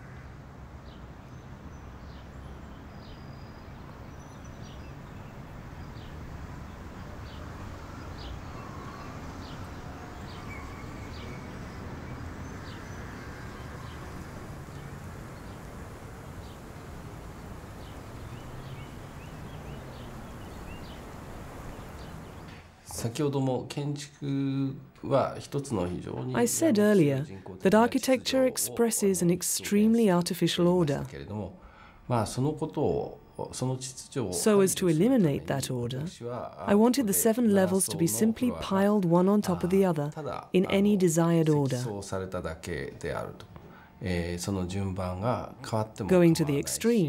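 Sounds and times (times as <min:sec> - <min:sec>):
ambient background noise: 0:00.0 - 0:47.0.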